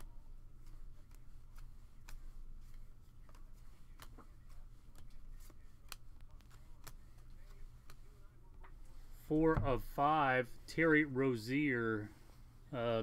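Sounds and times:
cards flipped by hand: 0.0s - 9.0s.

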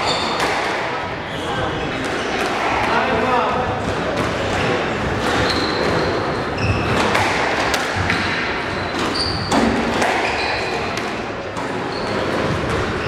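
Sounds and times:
shoes squeaking on wooden floor: 0.0s - 0.6s, 5.2s - 7.2s, 8.7s - 11.0s, 11.6s - 13.0s
squash ball striking rackets and walls: 0.0s - 13.0s.

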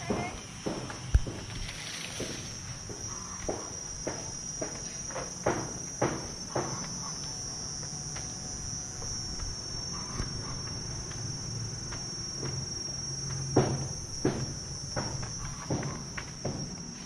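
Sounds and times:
thuds: 0.0s - 7.1s, 13.3s - 17.0s
insect chorus: 0.0s - 17.0s.

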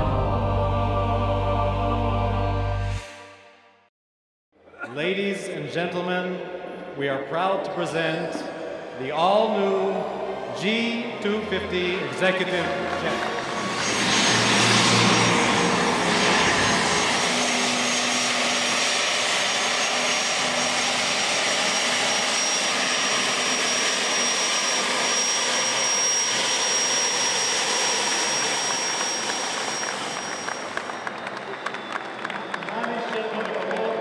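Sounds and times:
high engine whine: 0.0s - 3.3s, 8.1s - 33.8s
jet engines running: 7.7s - 34.0s.

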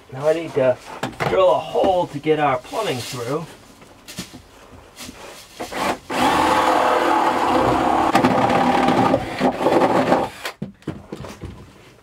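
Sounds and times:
cordless drill boring wood: 5.6s - 10.6s.

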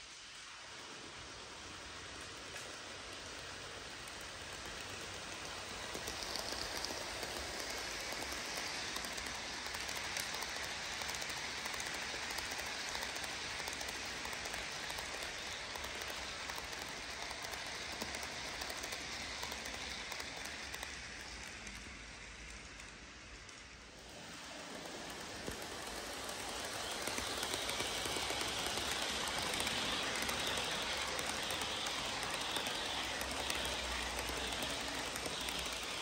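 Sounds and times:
model train wheels clicking: 0.0s - 36.0s.

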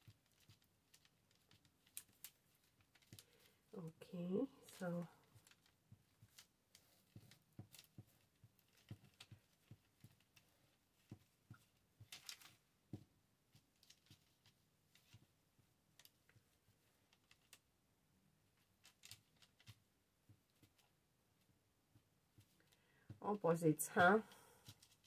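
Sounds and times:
paper rustling: 0.0s - 3.7s, 4.5s - 17.6s, 18.6s - 19.9s, 23.9s - 25.0s.

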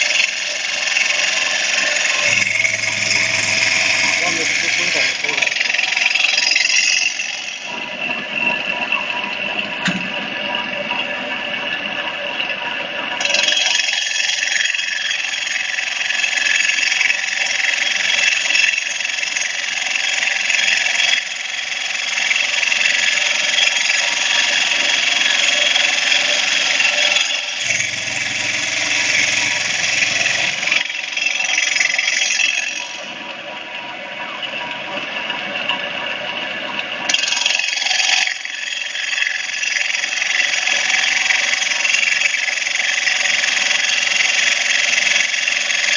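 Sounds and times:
saw blade cutting stone: 0.0s - 7.7s, 13.2s - 33.1s
low hum: 2.1s - 5.6s, 27.6s - 30.8s.

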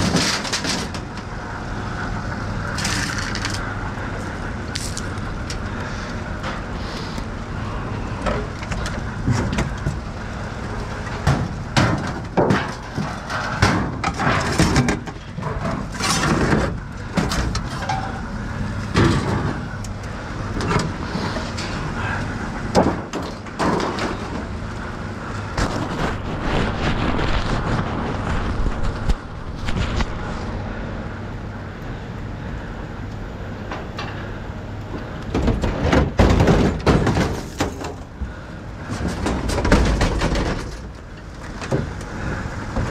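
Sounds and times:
scrap metal clanking and scraping: 0.0s - 1.3s, 10.6s - 18.3s, 18.9s - 19.8s, 20.5s - 24.6s, 35.3s - 38.1s, 38.8s - 42.9s
low engine rumble: 0.0s - 42.9s.

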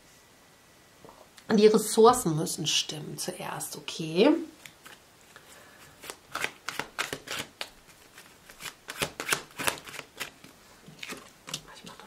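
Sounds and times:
cards being shuffled: 4.6s - 11.7s.

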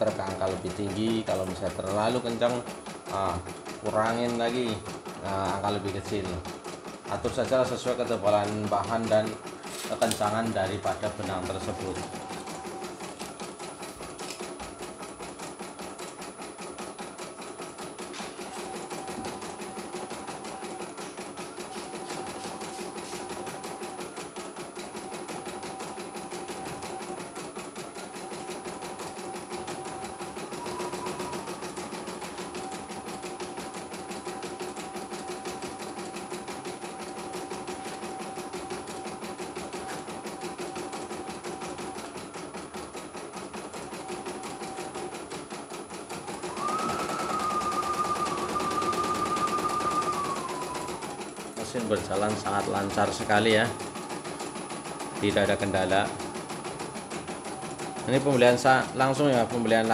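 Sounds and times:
embroidery machine needle stitching: 0.0s - 59.9s
steady motor hum: 46.5s - 48.4s.

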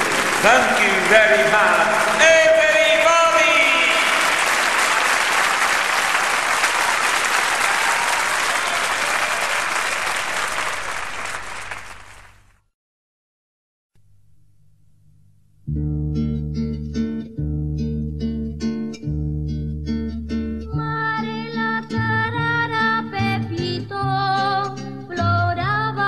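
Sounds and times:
audience applauding: 0.0s - 12.5s
person speaking: 0.3s - 4.3s.

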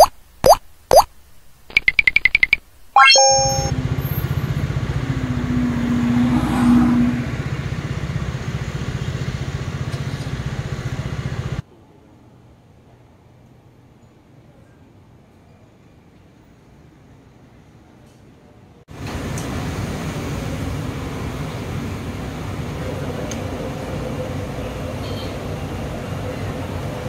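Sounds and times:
cartoon plops: 0.0s - 1.1s, 1.7s - 3.7s
fast electronic beeps: 0.0s - 1.1s, 1.7s - 3.7s
engine running close by: 3.8s - 11.6s.

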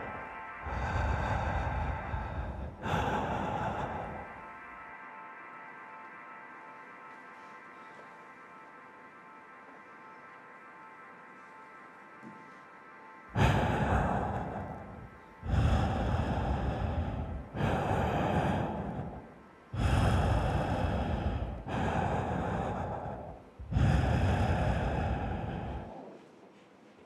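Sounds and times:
loud breath-like rushes: 0.0s - 5.3s, 13.3s - 27.0s
faint held music tones: 0.0s - 27.0s.

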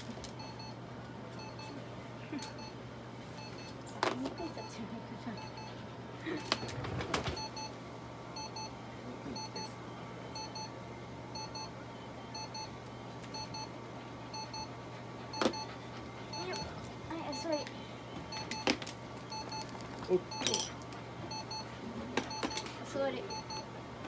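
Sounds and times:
steady low hum: 0.0s - 24.0s
electronic alarm beeping: 1.4s - 1.8s, 5.4s - 5.7s, 7.4s - 7.7s, 8.4s - 8.7s, 9.3s - 10.7s, 11.3s - 13.7s, 14.3s - 14.7s, 15.3s - 17.6s, 18.3s - 18.7s, 19.3s - 19.7s, 20.3s - 20.7s, 21.3s - 22.7s, 23.3s - 23.7s.

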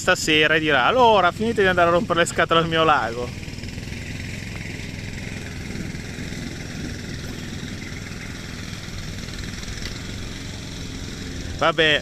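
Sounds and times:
wind buffeting microphone: 3.3s - 11.6s.

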